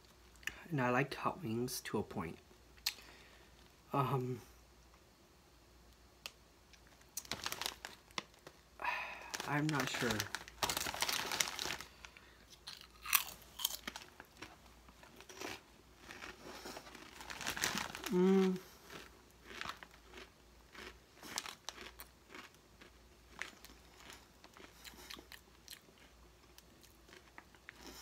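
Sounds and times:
potato chips crunching: 0:06.8 - 0:08.6, 0:09.2 - 0:28.0
person humming: 0:18.0 - 0:18.7.

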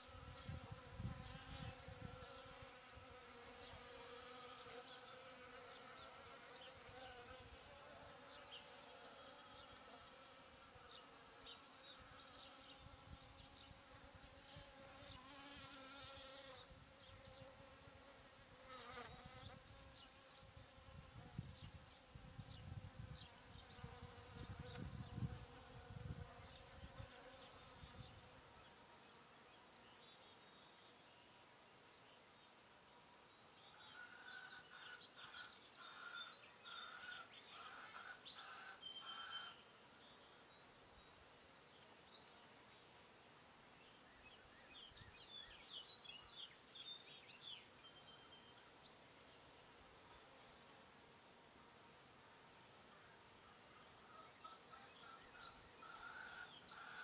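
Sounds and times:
honeybees buzzing: 0:00.0 - 0:29.6.

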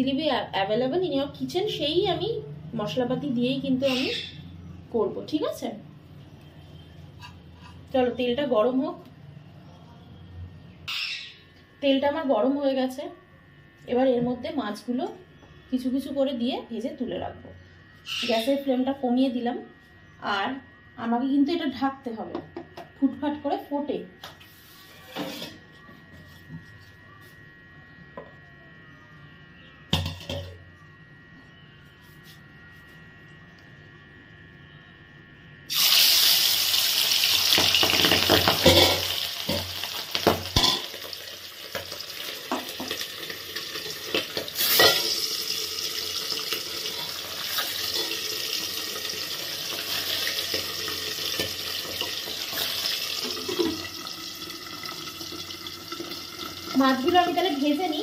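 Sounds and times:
fish frying in hot oil: 0:35.7 - 0:57.9.

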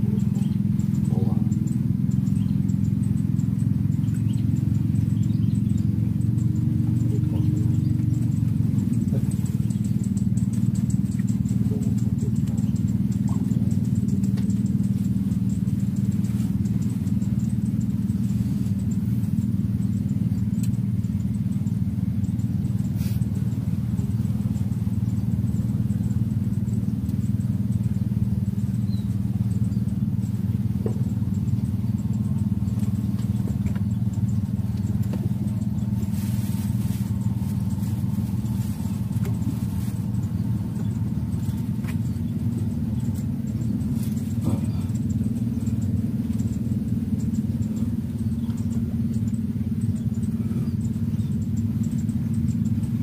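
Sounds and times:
small engine humming: 0:00.0 - 0:53.0
faint clicks: 0:20.6 - 0:20.8.

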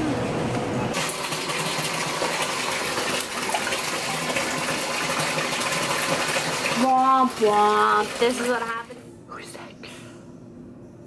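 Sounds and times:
tap water running into bathtub: 0:01.0 - 0:09.0.

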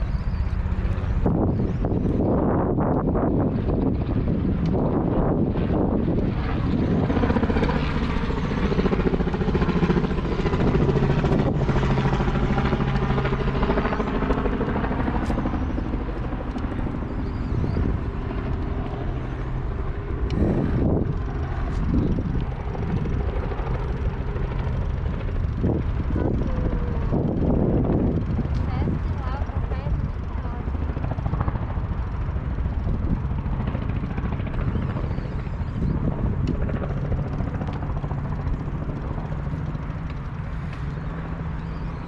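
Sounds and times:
engine drone: 0:00.0 - 0:42.0
vehicles passing: 0:06.8 - 0:30.9, 0:37.3 - 0:42.0.

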